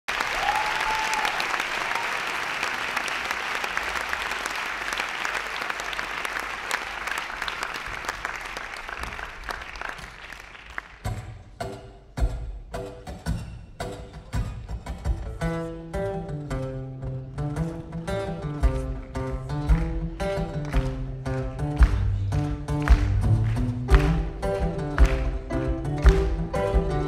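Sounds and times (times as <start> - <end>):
audience applauding: 0.0 - 11.1, 19.7 - 27.0
band playing song: 17.6 - 27.0.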